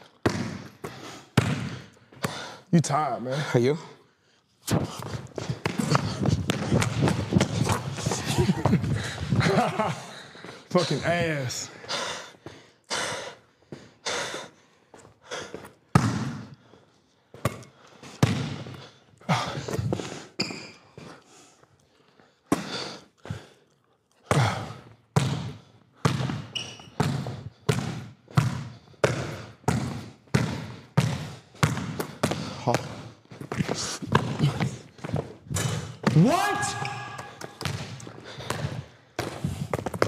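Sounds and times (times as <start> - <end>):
basketball dribbling on hard floor: 0.2 - 1.8, 5.0 - 9.5, 18.2 - 18.7, 25.2 - 36.2, 37.2 - 40.0.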